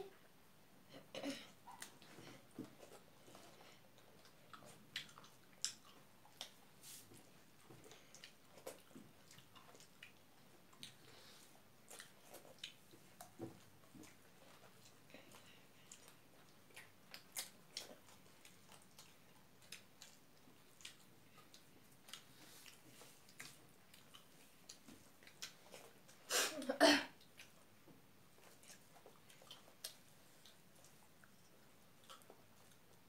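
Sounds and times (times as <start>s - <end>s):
mouth smacks and chewing: 1.5s - 26.3s, 27.2s - 33.0s
person coughing: 26.3s - 27.2s.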